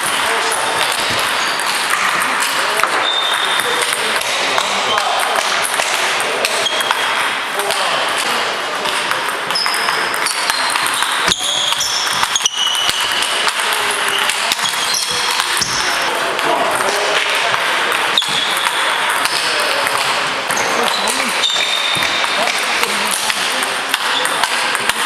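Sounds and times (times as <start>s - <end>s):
murmur of voices: 0.0s - 25.0s
table tennis ball hits: 0.0s - 25.0s.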